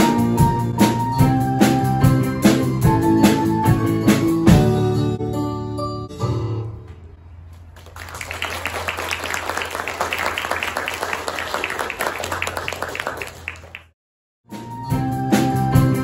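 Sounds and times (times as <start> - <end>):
audience clapping: 7.7 - 14.0.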